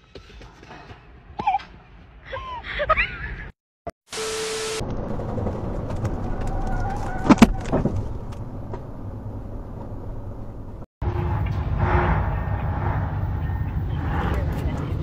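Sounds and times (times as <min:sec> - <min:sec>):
car tyres and engine rumble: 0:04.2 - 0:15.0.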